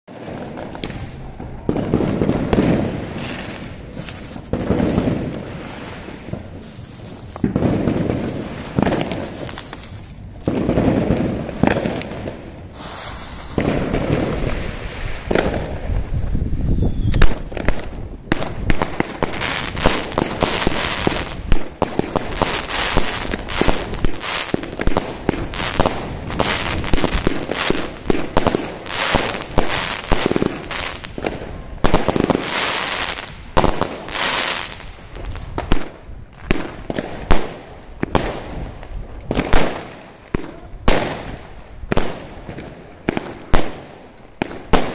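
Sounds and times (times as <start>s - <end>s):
firework shots bursting overhead: 0.1s - 44.9s
firework fuse sputtering: 2.3s - 11.1s, 11.7s - 17.4s.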